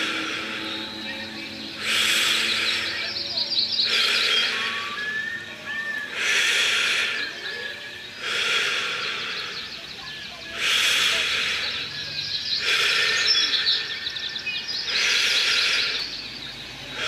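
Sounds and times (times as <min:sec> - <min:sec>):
breathy hissing bursts: 0:00.0 - 0:03.1, 0:03.8 - 0:04.8, 0:06.2 - 0:07.6, 0:08.2 - 0:09.8, 0:10.6 - 0:12.0, 0:12.6 - 0:14.0
birds chirping and whistling: 0:00.0 - 0:17.0.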